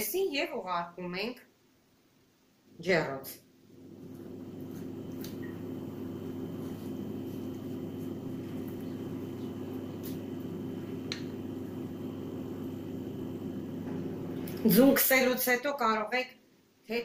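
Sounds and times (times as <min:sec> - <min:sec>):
low motor hum: 0:03.7 - 0:14.9.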